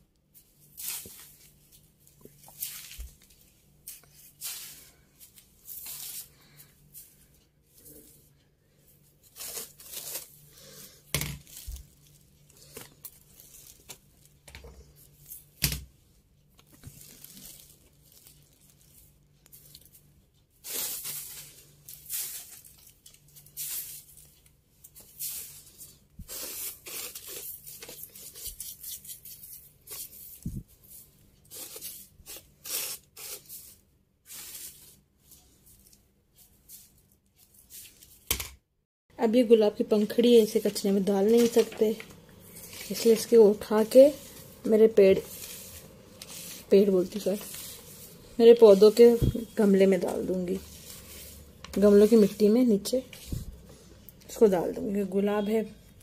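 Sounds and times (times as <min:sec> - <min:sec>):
broom sweeping tiled floor: 0:00.3 - 0:15.6, 0:16.7 - 0:38.3, 0:39.7 - 0:56.0
paper rustling: 0:09.2 - 0:10.8, 0:11.4 - 0:15.5, 0:16.6 - 0:38.3, 0:40.1 - 0:53.9.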